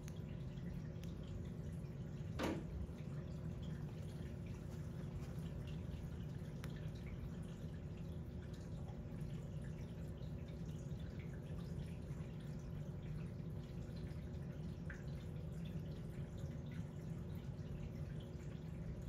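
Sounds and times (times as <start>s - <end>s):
aquarium water trickling: 0.0s - 19.0s
low steady hum: 0.0s - 19.0s.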